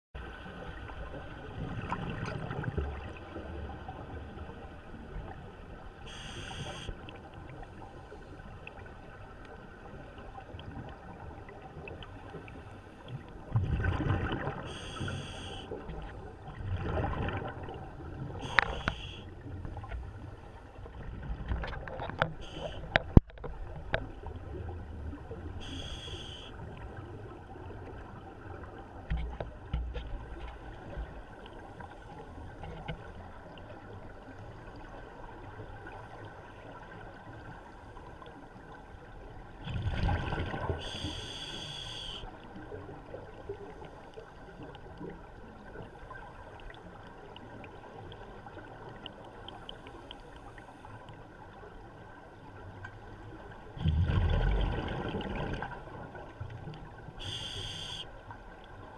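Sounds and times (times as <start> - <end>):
exhaled bubbles underwater: 0.5 - 5.4, 13.4 - 28.8, 39.6 - 43.6, 53.3 - 58.0
regulator inhalation hiss: 6.1 - 6.9, 14.7 - 15.7, 18.5 - 19.2, 25.6 - 26.5, 40.8 - 42.2, 57.2 - 58.0.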